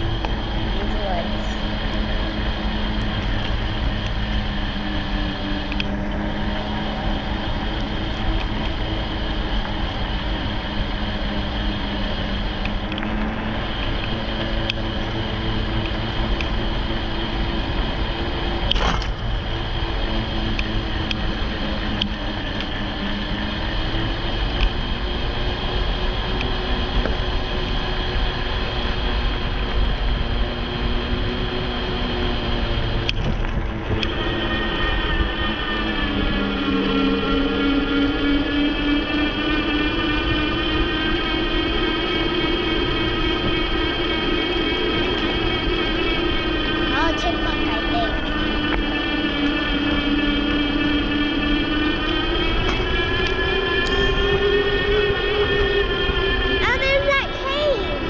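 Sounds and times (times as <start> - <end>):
electric motor whine: 0.0 - 58.0
wind buffeting microphone: 0.0 - 58.0.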